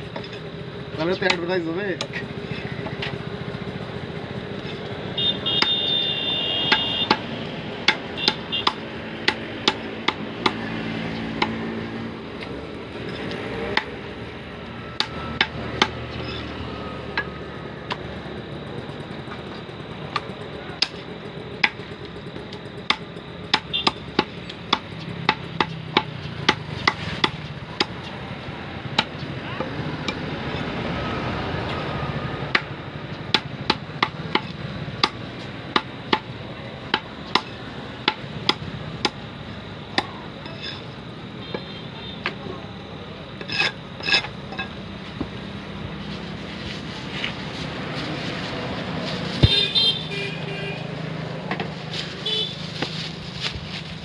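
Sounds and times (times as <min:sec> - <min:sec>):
cleaver chopping on wooden block: 0:06.7 - 0:10.7, 0:11.3 - 0:11.7, 0:15.0 - 0:16.4, 0:22.8 - 0:28.1, 0:33.3 - 0:36.3, 0:36.9 - 0:39.2.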